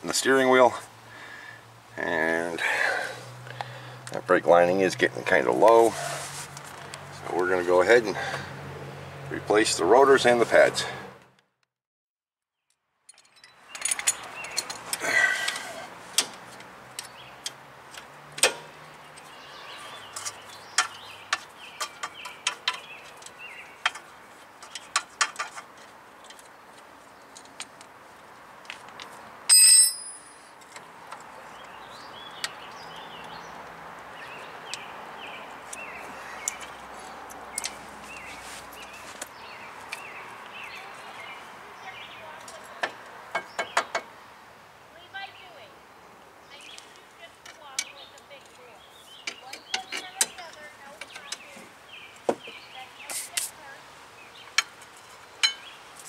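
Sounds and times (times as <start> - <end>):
metal tools clicking and knocking: 13.1 - 15.6, 54.6 - 55.6.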